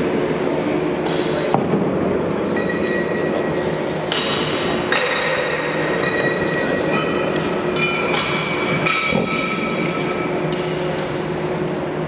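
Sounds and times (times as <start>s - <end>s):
murmur of hall: 0.0s - 12.0s
weight plates clinking: 4.9s - 11.2s.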